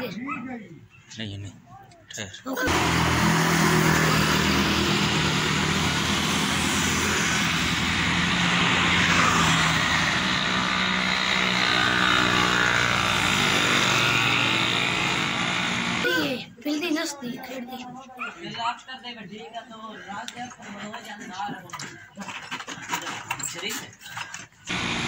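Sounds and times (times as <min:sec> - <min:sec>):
loud wide hiss: 0:02.7 - 0:11.7.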